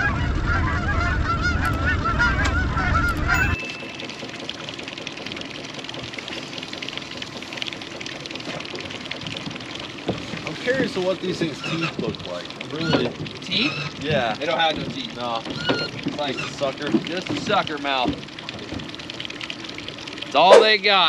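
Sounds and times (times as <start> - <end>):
geese honking: 0.0 - 3.6
wind rumble: 0.0 - 3.6.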